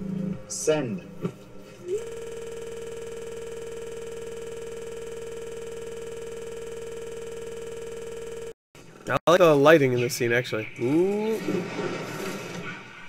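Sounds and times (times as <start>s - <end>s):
steady electronic tone: 1.8s - 8.6s.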